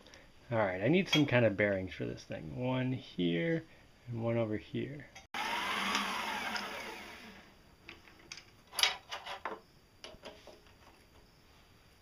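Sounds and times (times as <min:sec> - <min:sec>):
lathe whine spinning down: 0:05.4 - 0:07.5.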